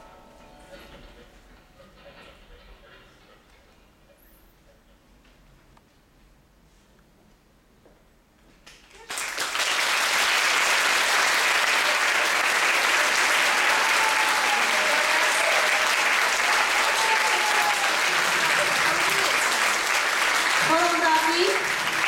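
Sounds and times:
audience applause: 8.9 - 22.0.

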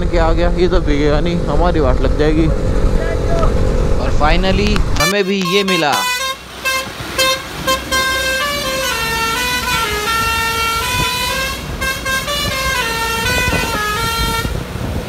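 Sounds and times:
rumble of engines and traffic: 0.0 - 15.0
truck musical horn: 5.0 - 14.8.

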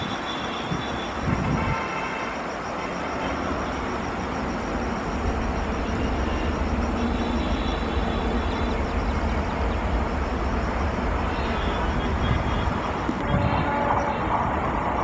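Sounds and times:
faint high whine: 0.0 - 14.3
train rumble: 0.0 - 15.0.

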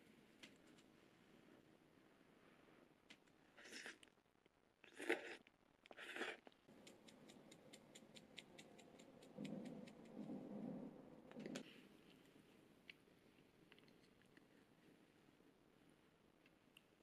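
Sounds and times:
light ticks: 6.7 - 10.4.

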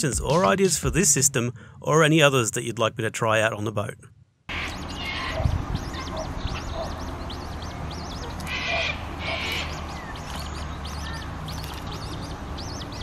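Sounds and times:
harsh rasping bird calls: 4.5 - 13.0
high bird chirps: 4.5 - 13.0.

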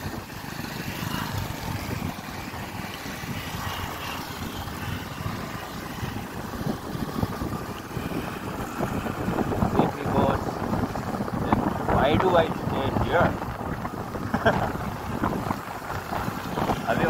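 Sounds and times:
motorcycle engine: 0.0 - 17.0
wind buffeting microphone: 0.0 - 17.0.

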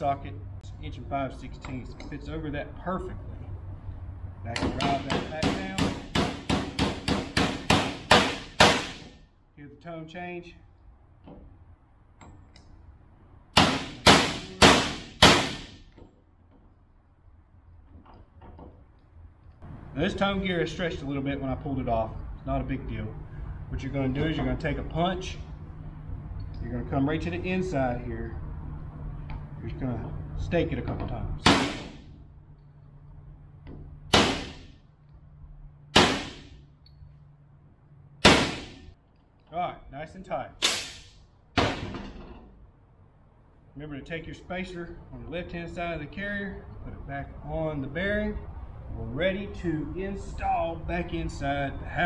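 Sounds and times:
hammer striking steel punch: 4.6 - 9.2, 13.6 - 15.9, 31.4 - 32.0, 34.1 - 34.8, 35.9 - 36.6, 38.2 - 38.9.

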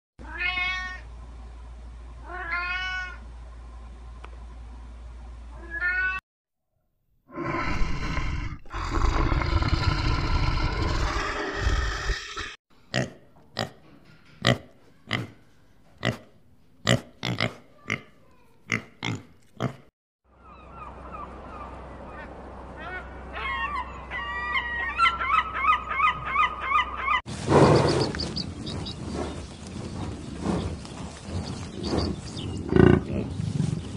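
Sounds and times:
rough noisy animal call: 7.3 - 12.6.

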